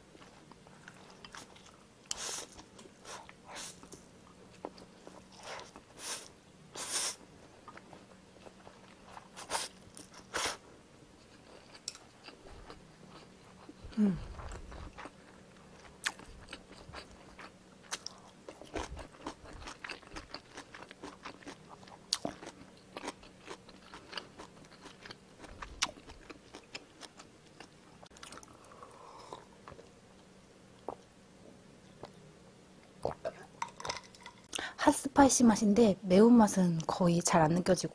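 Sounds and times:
close chewing of noodles: 0.1 - 3.8, 11.2 - 29.9.

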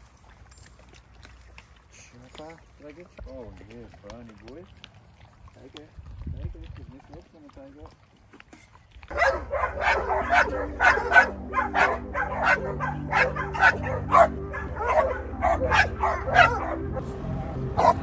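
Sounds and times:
dogs barking excitedly: 9.1 - 17.0, 17.6 - 18.0
vehicle engine humming: 9.1 - 18.0.

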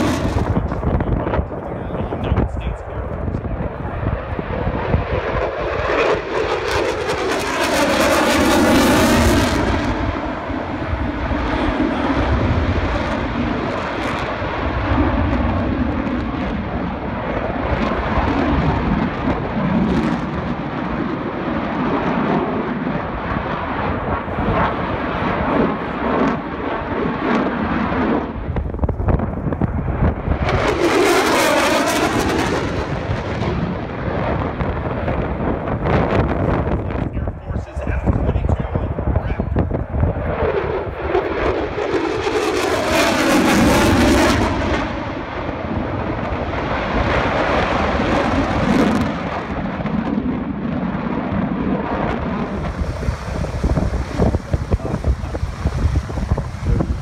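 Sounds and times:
propeller plane engine passing: 0.0 - 57.0.

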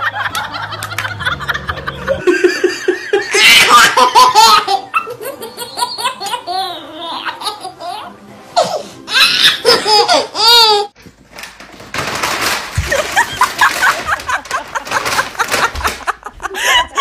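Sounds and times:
baby laughing: 1.7 - 11.0.

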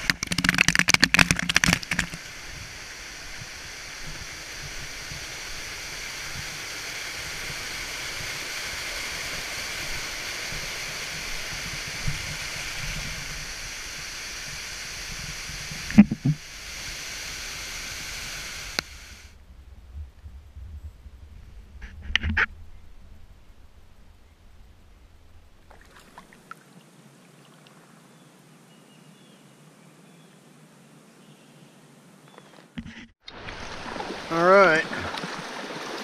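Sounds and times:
waterfall rushing: 33.3 - 36.0.

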